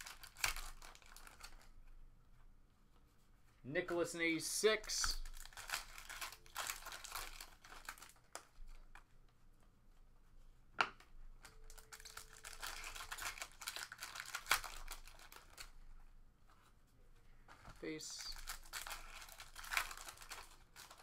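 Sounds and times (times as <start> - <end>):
foil wrappers crinkling and tearing: 0.0 - 1.8, 4.8 - 9.0, 11.4 - 15.8, 17.7 - 21.0.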